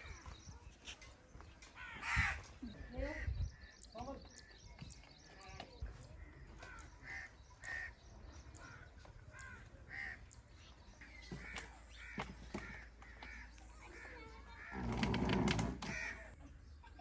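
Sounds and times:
crows cawing: 1.8 - 2.5, 6.2 - 8.0, 8.6 - 10.3, 11.3 - 16.4.

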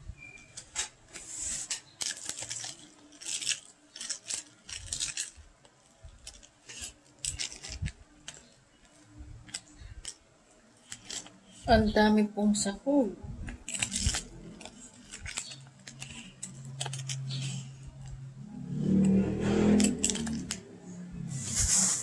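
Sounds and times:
spoon scraping ice in cup: 0.2 - 10.2, 10.8 - 11.8, 13.6 - 18.2, 18.8 - 20.6.

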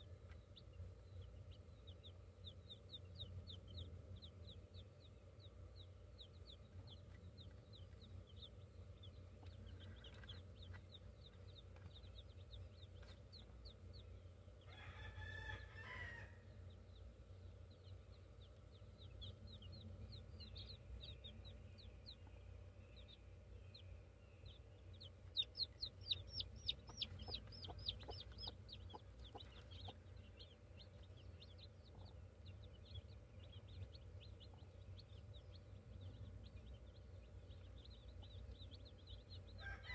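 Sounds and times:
chicks peeping: 0.0 - 39.9
low hum: 16.4 - 39.6.

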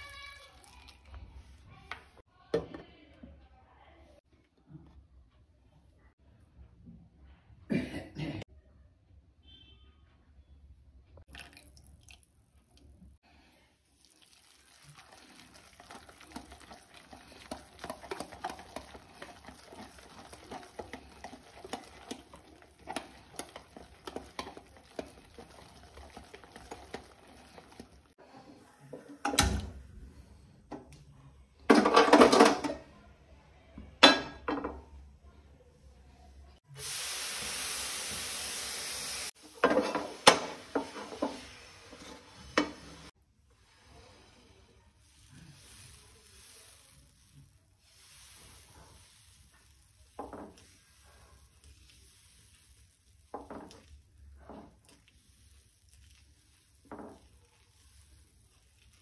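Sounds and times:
spoon scraping in bowl: 15.0 - 28.1
utensils knocking and clattering: 31.7 - 32.8, 39.5 - 41.4.

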